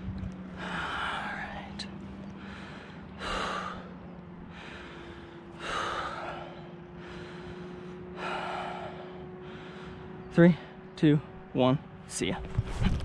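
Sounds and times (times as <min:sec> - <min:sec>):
man breathing deeply: 0:00.4 - 0:10.8.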